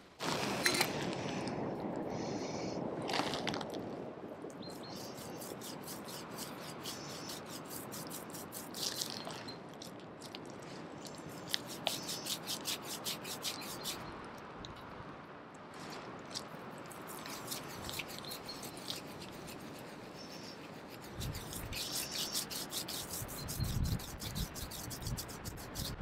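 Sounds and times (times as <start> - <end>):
scratchy crackling of hair rubbing: 4.7 - 9.4, 11.3 - 14.0, 16.9 - 26.0.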